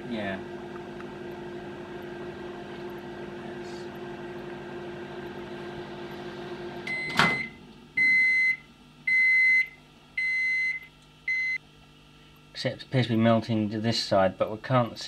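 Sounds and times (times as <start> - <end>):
microwave oven humming: 0.0 - 15.0
microwave timer click: 4.3 - 11.6
microwave beeps: 5.1 - 11.6.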